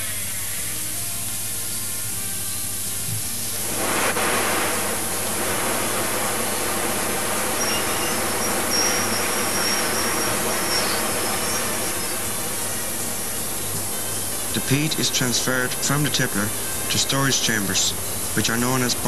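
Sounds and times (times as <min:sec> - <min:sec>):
belt conveyor running: 0:03.4 - 0:19.0
faint high squeal: 0:06.4 - 0:15.7.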